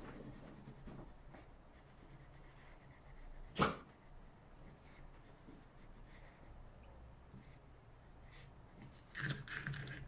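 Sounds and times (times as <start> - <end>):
pencil scratching on paper: 0.0 - 6.6.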